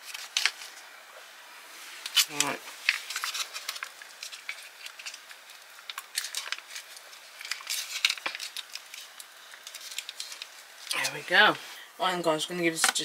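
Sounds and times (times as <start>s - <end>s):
plastic pouch crinkling and tearing: 0.0s - 0.8s, 2.0s - 11.1s.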